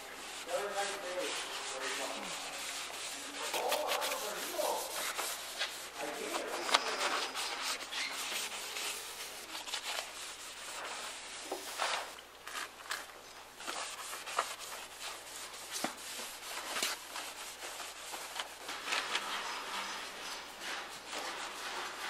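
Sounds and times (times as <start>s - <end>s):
rag rubbing on metal: 0.0s - 11.5s.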